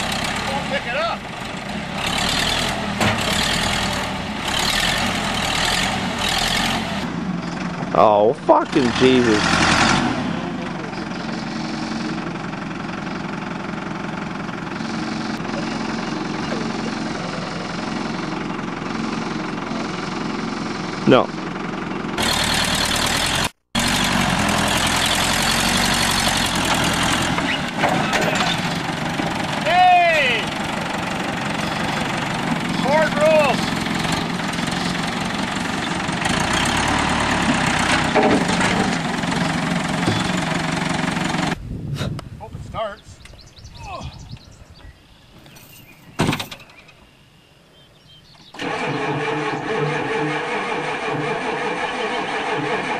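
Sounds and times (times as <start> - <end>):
truck engine running at low revs: 0.0 - 47.2.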